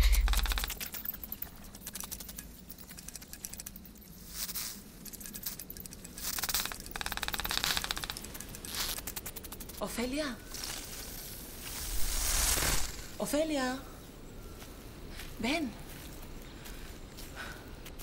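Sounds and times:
dry clicking and chittering: 0.0s - 12.0s.

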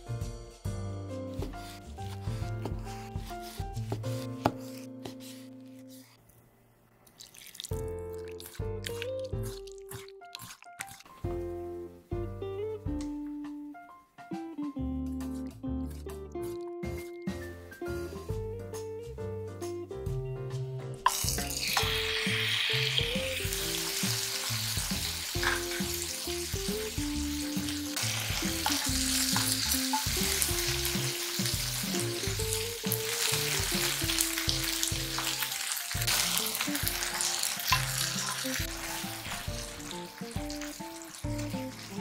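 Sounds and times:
soft background music: 0.0s - 6.2s, 7.5s - 42.0s
chicken and onion sizzling in pan: 1.4s - 4.0s, 21.1s - 42.0s.

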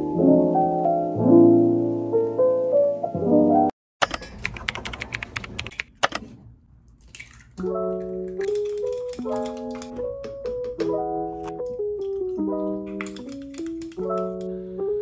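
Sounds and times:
soft piano music: 0.0s - 3.7s, 7.6s - 15.0s
keyboard typing clicks: 4.0s - 6.2s, 11.6s - 14.5s.

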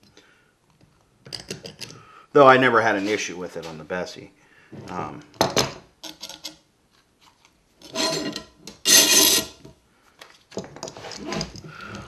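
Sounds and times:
clamp jaw rasping along bar: 7.8s - 9.6s.

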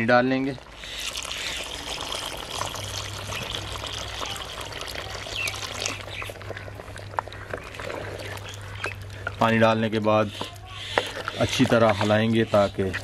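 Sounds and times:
water pouring into pot: 0.0s - 9.6s
water splashing into gravy: 0.7s - 9.2s.

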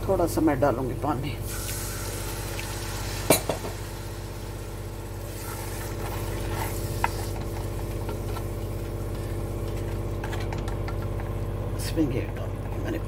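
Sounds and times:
masala sizzling in a pot: 1.4s - 10.1s.

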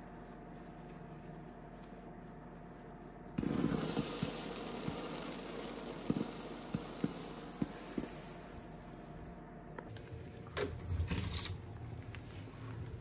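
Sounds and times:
wood fire crackling and popping: 3.4s - 8.6s.

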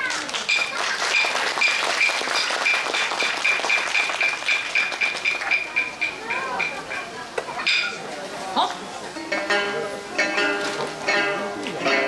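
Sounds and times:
wooden clappers clacking: 0.3s - 7.1s.

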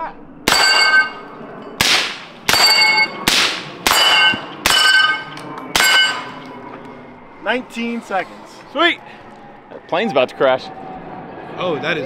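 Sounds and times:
rifle shots: 0.5s - 1.2s, 1.8s - 6.4s
steel plates ringing: 0.5s - 3.2s, 3.8s - 6.5s.

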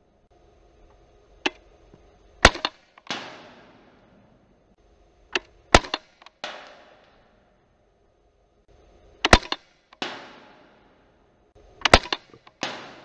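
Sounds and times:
air pistol shots: 2.4s - 4.4s, 5.3s - 7.4s, 9.2s - 13.0s
metallic target ringing: 2.5s - 4.5s, 5.8s - 7.4s, 9.4s - 11.3s, 12.0s - 13.0s.

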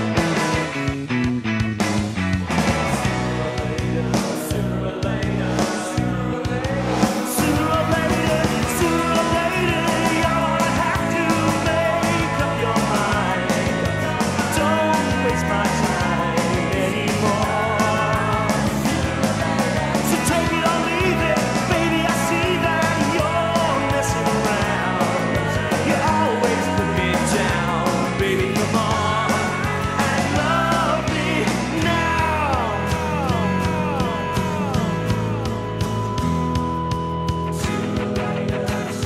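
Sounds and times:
rock band music: 0.0s - 39.0s.

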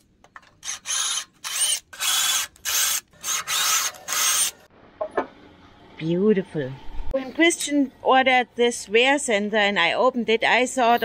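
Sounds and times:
tool noisy bursts: 0.7s - 4.7s.

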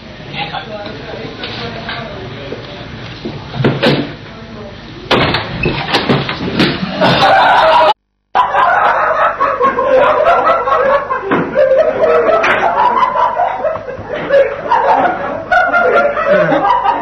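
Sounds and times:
students laughing and shouting: 6.8s - 17.0s.

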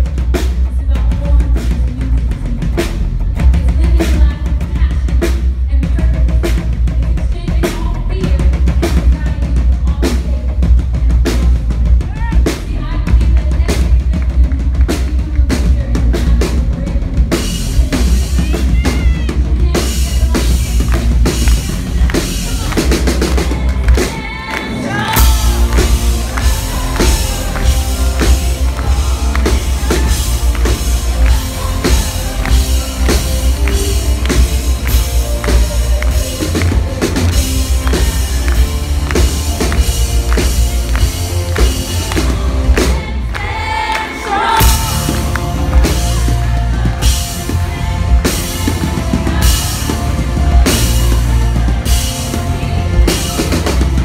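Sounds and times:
drum kit: 0.0s - 54.0s
woman singing: 0.4s - 54.0s.

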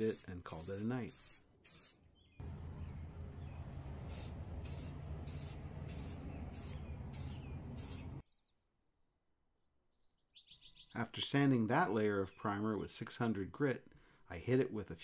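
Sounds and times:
spray can hissing bursts: 0.0s - 2.0s, 4.0s - 8.2s
low hum: 2.4s - 8.2s.

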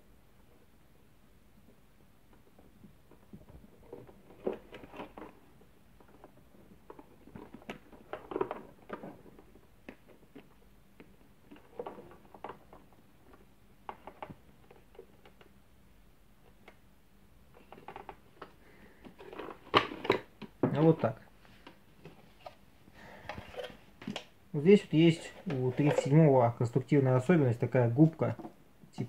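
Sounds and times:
plastic parts clicking and rustling: 2.3s - 15.6s, 17.5s - 22.6s, 23.2s - 24.3s, 25.1s - 26.7s.

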